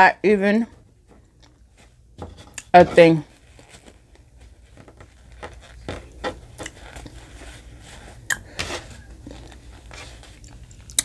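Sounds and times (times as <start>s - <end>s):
person chewing: 8.1s - 11.0s
mouth clicks and smacks: 10.4s - 11.0s.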